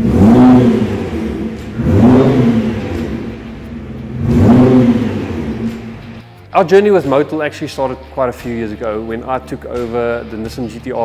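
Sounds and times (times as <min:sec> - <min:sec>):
car engine revving: 0:00.0 - 0:06.3.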